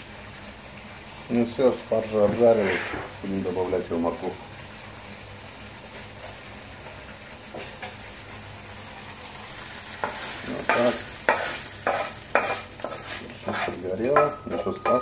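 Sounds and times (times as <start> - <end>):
faint sizzle: 0.0 - 15.0
quick scraping sweeps: 2.4 - 3.2.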